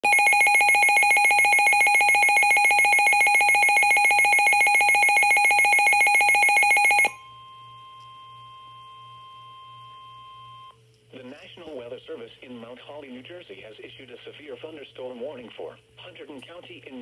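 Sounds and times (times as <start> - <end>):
rapidly pulsing electronic beep: 0.0 - 7.8.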